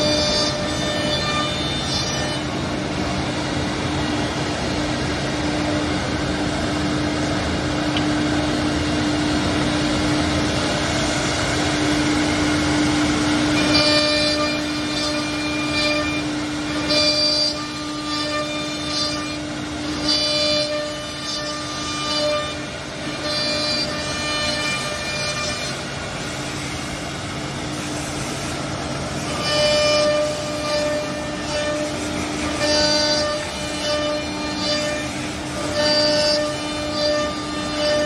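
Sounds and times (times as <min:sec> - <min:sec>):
high-pitched cutting squeals: 0:00.0 - 0:02.6, 0:13.5 - 0:25.8, 0:29.3 - 0:38.0
router spindles whining: 0:00.0 - 0:04.1, 0:10.5 - 0:26.6, 0:29.2 - 0:38.0.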